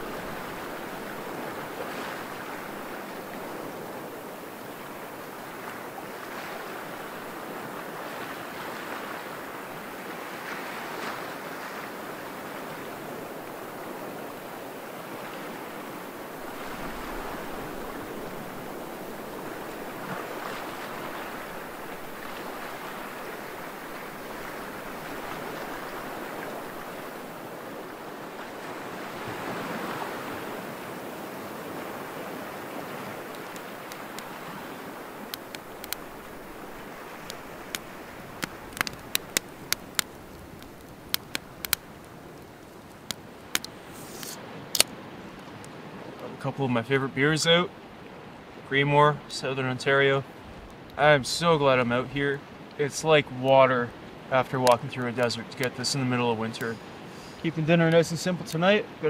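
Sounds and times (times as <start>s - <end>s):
small waves washing against shore: 0.0s - 59.0s.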